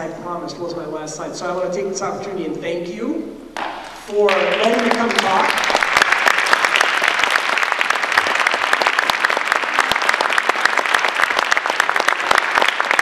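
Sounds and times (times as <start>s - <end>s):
audience applauding: 3.6s - 13.0s.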